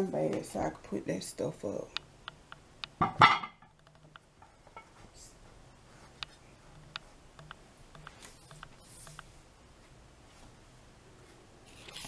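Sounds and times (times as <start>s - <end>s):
plate clattering: 3.0s - 3.7s
faint clicks: 6.2s - 9.3s.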